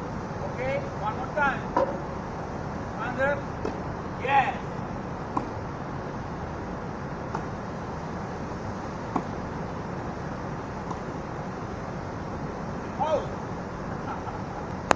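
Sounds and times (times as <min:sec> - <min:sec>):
low background noise: 0:00.0 - 0:14.9
tennis ball struck by racquet: 0:05.3 - 0:05.6, 0:09.1 - 0:09.4, 0:10.8 - 0:11.1.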